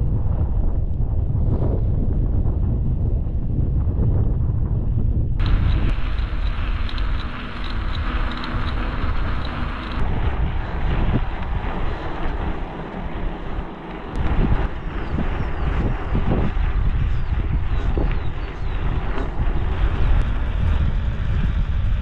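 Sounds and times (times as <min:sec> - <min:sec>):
wind buffeting microphone: 0:00.0 - 0:22.0
tyres rumbling on rough track: 0:05.4 - 0:22.0.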